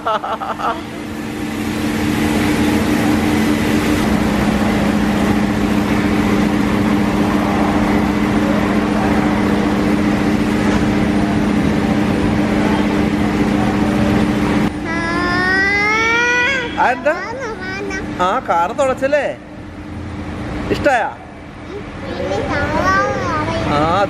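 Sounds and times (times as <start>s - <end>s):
two-note motor hum: 0.0s - 18.2s.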